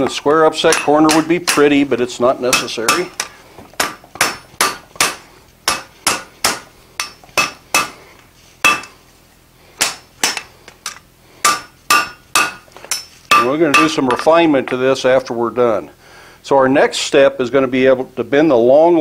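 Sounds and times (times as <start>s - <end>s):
hammer striking steel on anvil: 0.5s - 8.0s, 8.6s - 9.0s, 9.8s - 14.5s.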